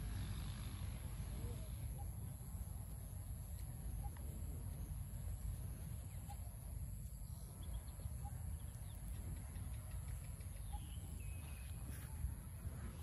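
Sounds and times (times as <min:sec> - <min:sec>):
faint bird chirps: 0:01.2 - 0:13.0.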